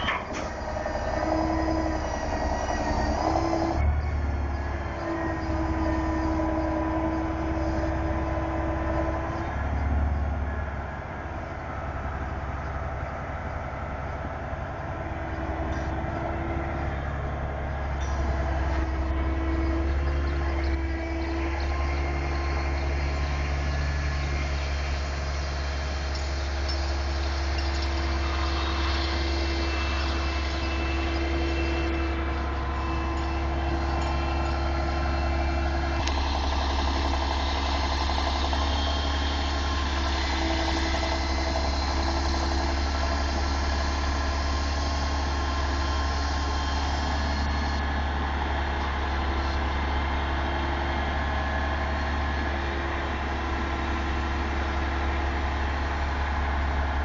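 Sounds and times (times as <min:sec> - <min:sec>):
crane diesel engine humming: 0:00.0 - 0:57.0.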